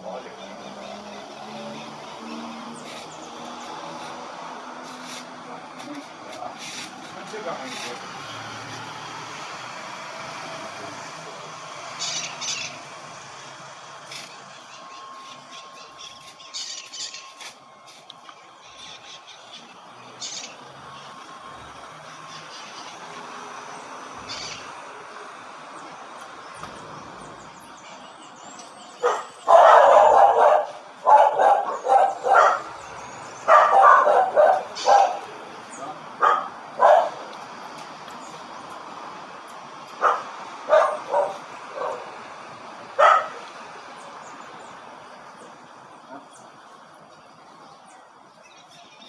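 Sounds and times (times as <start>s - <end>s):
marmosets chirping and whistling: 12.0s - 12.8s, 14.1s - 17.4s
dog barking: 29.0s - 32.7s, 33.5s - 35.3s, 36.2s - 37.2s, 40.0s - 42.1s, 43.0s - 43.5s.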